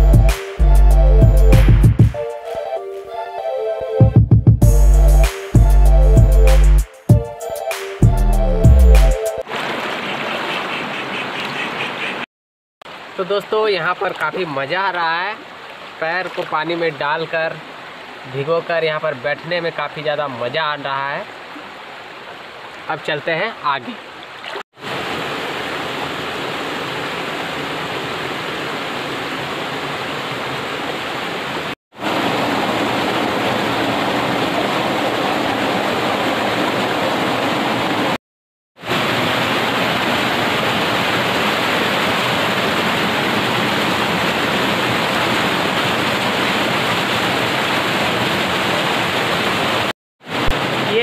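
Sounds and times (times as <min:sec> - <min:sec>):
waterfall rushing: 0:24.8 - 0:38.2, 0:38.8 - 0:51.0.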